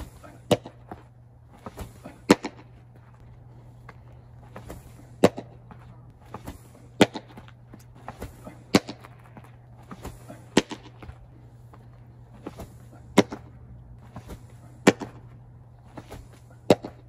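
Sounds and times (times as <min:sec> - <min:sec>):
baseball smacking into mitt: 0:01.7 - 0:02.6, 0:09.9 - 0:11.0, 0:12.5 - 0:13.4, 0:16.0 - 0:17.0.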